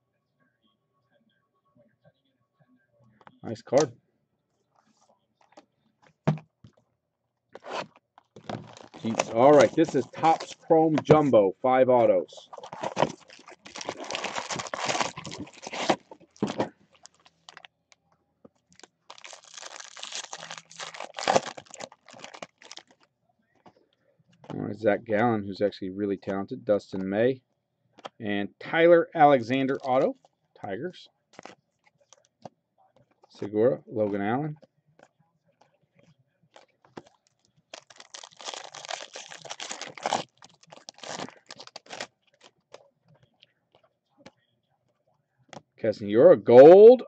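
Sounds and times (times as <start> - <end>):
foil wrapper tearing and crinkling: 7.6 - 11.2, 12.5 - 17.7, 18.7 - 23.0, 37.7 - 42.5.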